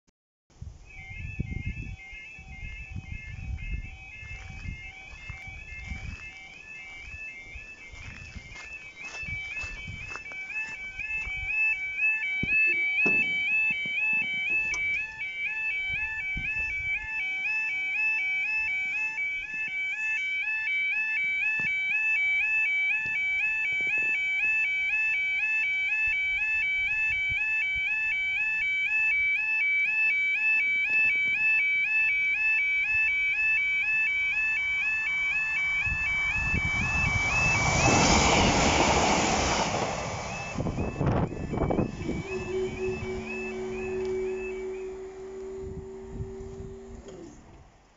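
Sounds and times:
level crossing alarm warbling: 0:00.9 - 0:47.5
train passing: 0:35.6 - 0:46.8.

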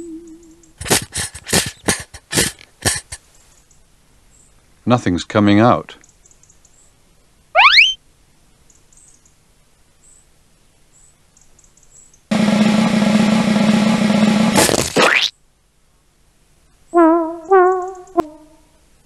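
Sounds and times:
rising whistle sound effect: 0:07.6 - 0:08.0.

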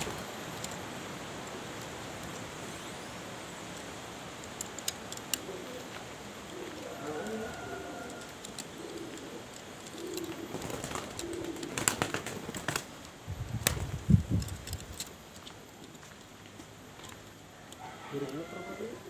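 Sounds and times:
wing flapping: 0:00.0 - 0:02.6, 0:04.3 - 0:15.9
clicks: 0:03.7 - 0:11.7
pigeons cooing: 0:04.8 - 0:13.0.

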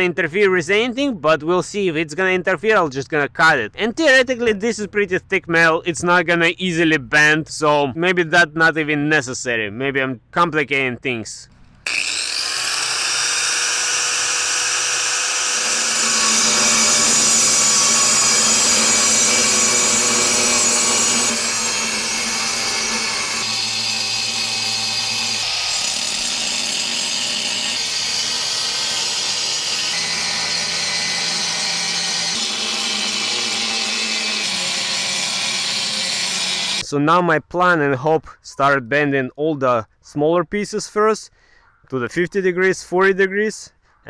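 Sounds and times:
angle grinder cutting steel: 0:11.9 - 0:36.8.

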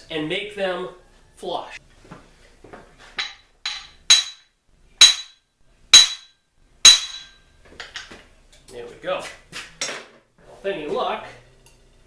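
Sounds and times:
hammer striking metal: 0:03.2 - 0:05.4, 0:06.0 - 0:07.4.

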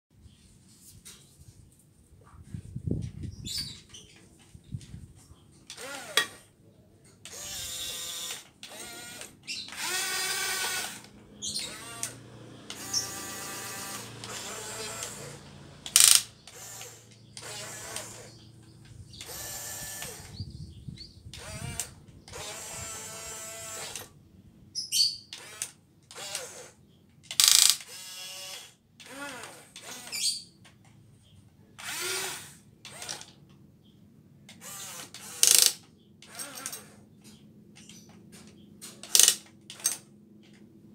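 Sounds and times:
small electric motors whining: 0:05.7 - 0:06.5, 0:07.2 - 0:20.6, 0:21.3 - 0:24.2, 0:25.0 - 0:30.5, 0:31.8 - 0:33.4, 0:34.5 - 0:37.0.

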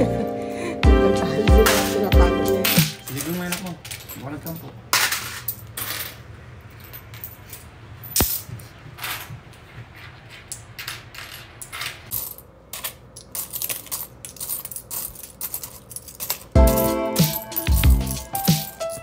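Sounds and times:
coins clinking and sliding: 0:01.6 - 0:08.4, 0:10.7 - 0:19.0.

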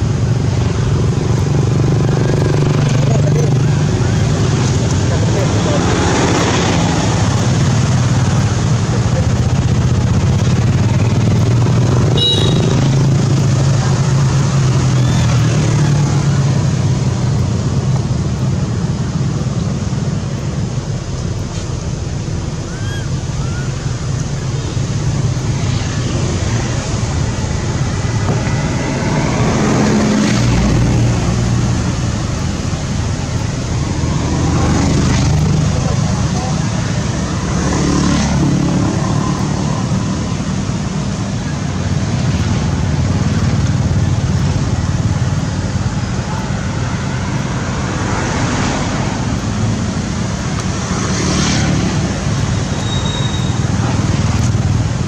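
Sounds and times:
vehicle engines humming: 0:00.0 - 0:55.0.

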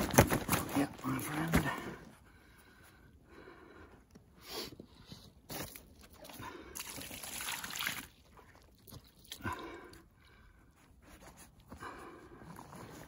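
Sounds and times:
water trickling and sloshing: 0:06.0 - 0:09.9
water splashing: 0:06.8 - 0:09.4.

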